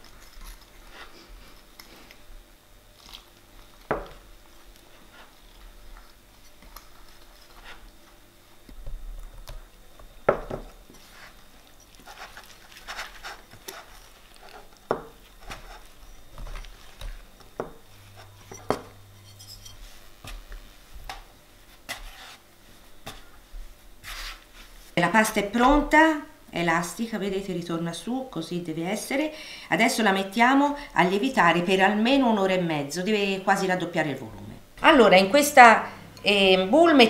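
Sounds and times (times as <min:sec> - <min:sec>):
metal utensil scraping glass bowl: 0:18.4 - 0:19.9.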